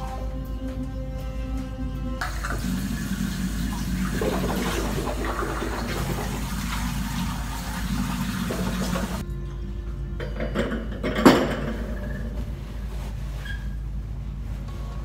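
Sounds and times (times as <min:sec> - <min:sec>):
water running from sink tap: 0:02.2 - 0:09.2.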